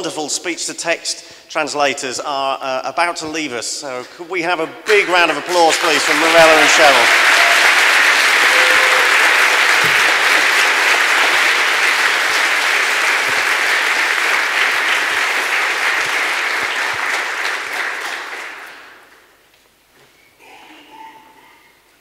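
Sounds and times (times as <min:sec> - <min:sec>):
audience applauding: 0:04.9 - 0:19.3.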